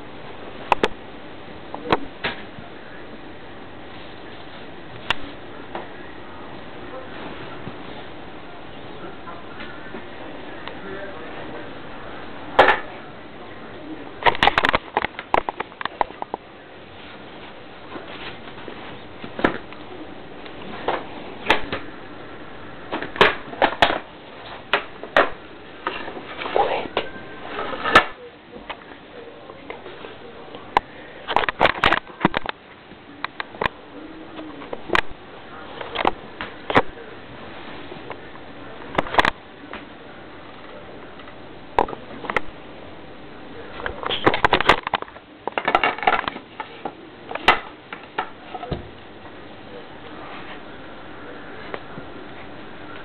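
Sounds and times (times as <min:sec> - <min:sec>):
handling clicks knocks and rustles: 0:14.2 - 0:16.4, 0:30.8 - 0:32.6, 0:43.8 - 0:48.8.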